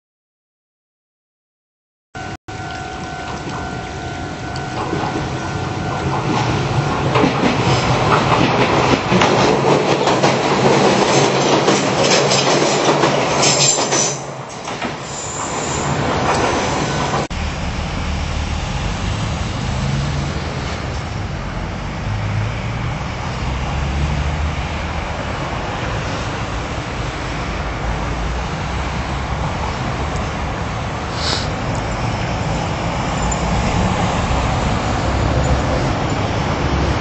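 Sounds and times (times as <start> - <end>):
electric train passing: 2.2 - 37.0
wheels clattering over rail joints: 4.4 - 17.3.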